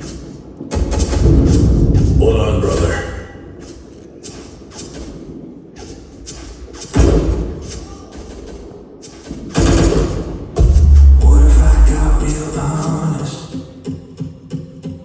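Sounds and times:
loud deep thud: 0.8 - 2.8, 10.6 - 12.4.

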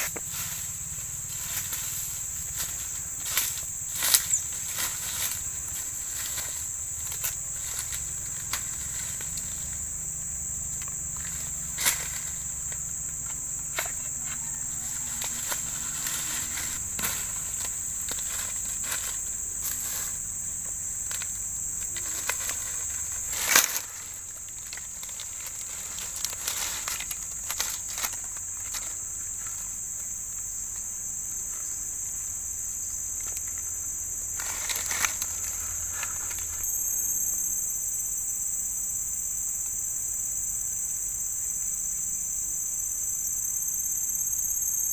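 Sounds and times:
insects singing: 0.0 - 44.9.

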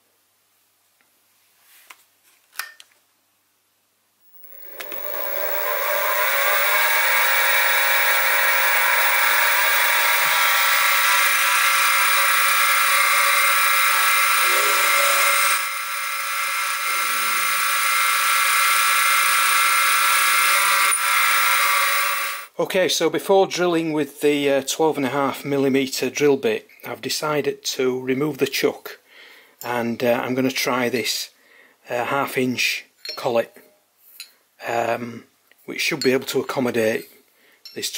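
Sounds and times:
drill bit boring into metal: 4.3 - 22.5
mill motor whining: 4.3 - 22.5.

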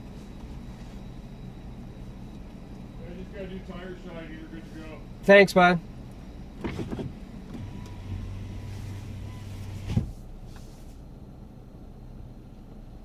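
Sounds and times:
power window motor humming: 6.5 - 11.0
window glass closing thump: 9.7 - 10.2.

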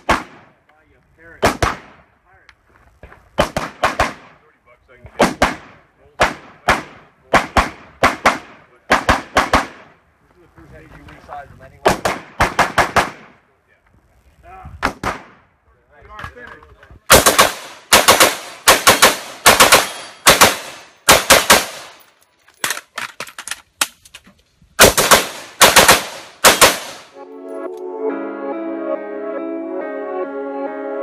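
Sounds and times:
rifle shots with echo: 0.0 - 0.6, 1.3 - 2.1, 3.4 - 4.5, 5.2 - 10.0, 11.8 - 13.4, 14.8 - 15.5, 17.1 - 22.0, 24.8 - 27.1
soft ambient music: 27.2 - 31.0.

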